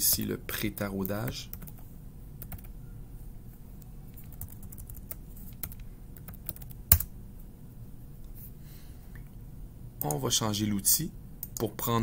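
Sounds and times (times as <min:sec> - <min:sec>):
keyboard typing: 0:00.0 - 0:02.7, 0:04.1 - 0:07.1.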